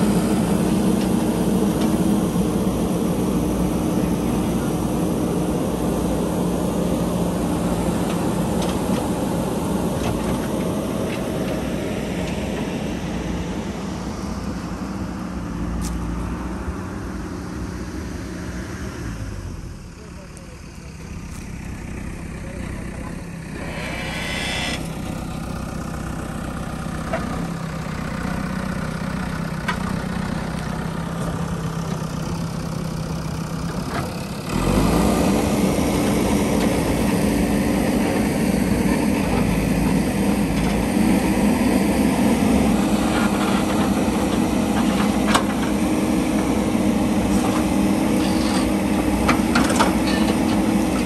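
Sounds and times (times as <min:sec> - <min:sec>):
diesel engine revving: 0:00.0 - 0:51.0.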